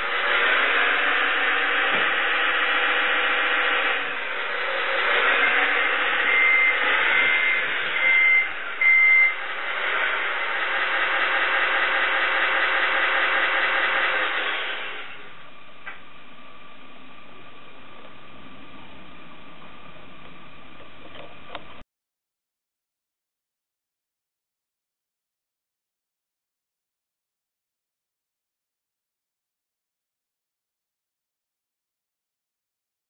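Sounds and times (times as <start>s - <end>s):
simulated diesel truck engine: 0.0s - 21.8s
high reversing beeps: 6.0s - 9.4s.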